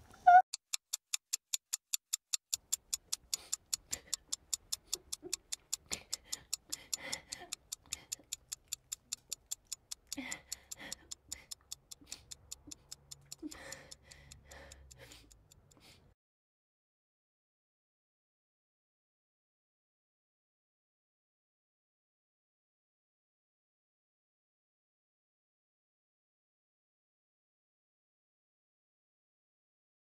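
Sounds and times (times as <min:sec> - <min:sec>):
rapid even ticking: 0:00.6 - 0:16.0.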